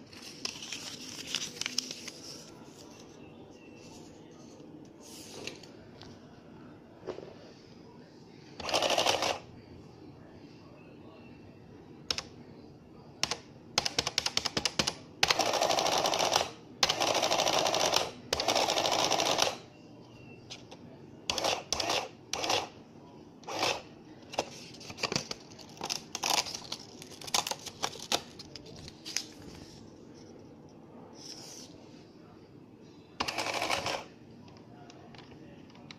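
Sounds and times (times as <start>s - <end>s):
printing calculator rattling: 8.6s - 9.5s, 13.8s - 19.7s, 33.2s - 34.1s.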